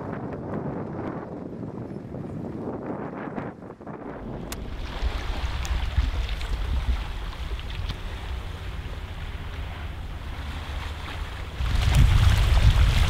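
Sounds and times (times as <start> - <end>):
wind rumbling on microphone: 0.0 - 13.0
gentle sea on pebble shore: 4.1 - 13.0.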